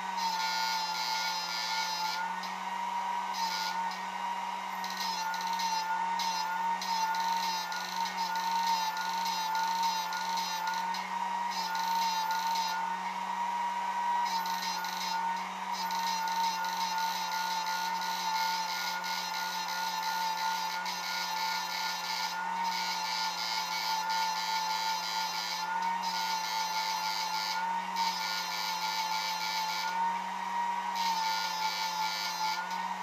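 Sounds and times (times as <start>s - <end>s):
cooling fan whirring: 0.0s - 20.9s
high-pitched electrical whine: 0.0s - 33.0s.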